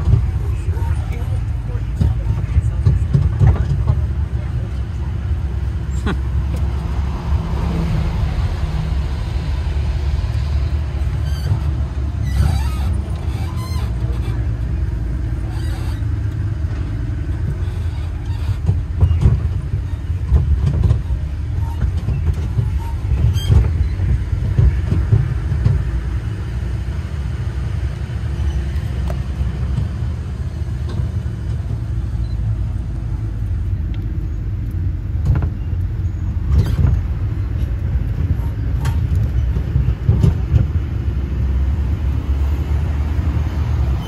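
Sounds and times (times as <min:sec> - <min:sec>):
road train motor rumble: 0:00.0 - 0:44.0.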